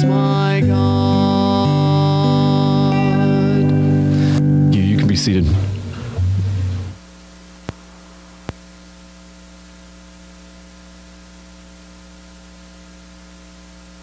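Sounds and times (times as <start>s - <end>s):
song with guitar: 0.0s - 7.0s
electrical mains hum: 0.0s - 14.0s.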